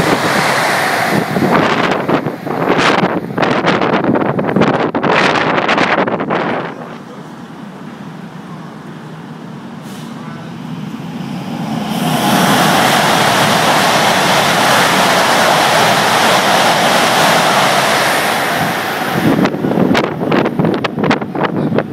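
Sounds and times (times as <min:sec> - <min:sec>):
wind buffeting microphone: 0:00.0 - 0:07.2, 0:10.4 - 0:21.9
high-speed train passing: 0:00.0 - 0:21.9.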